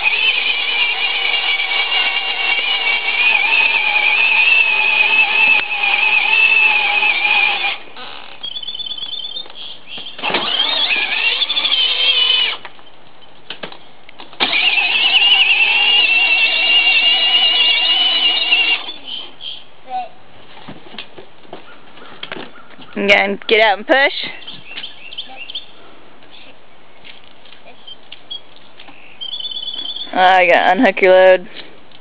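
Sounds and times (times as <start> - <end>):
electric toy car motors whining: 0.0 - 9.4, 10.2 - 12.7, 14.4 - 19.2.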